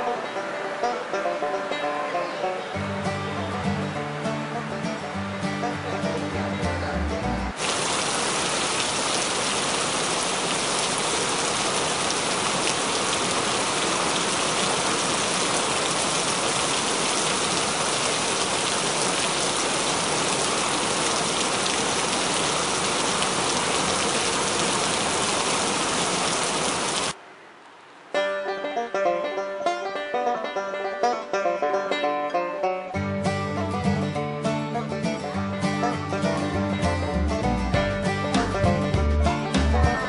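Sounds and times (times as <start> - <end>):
music: 0.0 - 7.6, 28.2 - 40.0
steady rushing hiss: 7.6 - 28.1.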